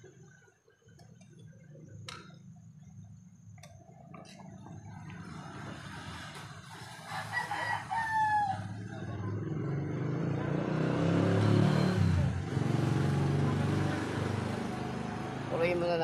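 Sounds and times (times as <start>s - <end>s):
vehicle engine running: 1.0s - 7.0s
rooster crowing: 6.9s - 9.1s.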